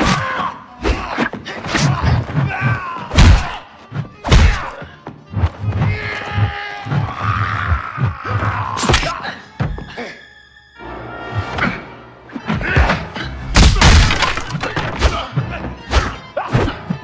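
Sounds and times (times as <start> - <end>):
film music score: 0.0 - 17.0
punch and kick impacts: 3.2 - 3.6, 4.2 - 4.7, 13.6 - 15.2.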